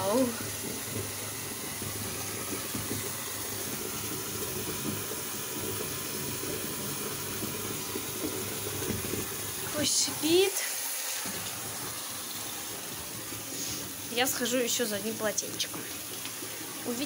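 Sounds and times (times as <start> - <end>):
bath bomb fizzing underwater: 0.0 - 17.0.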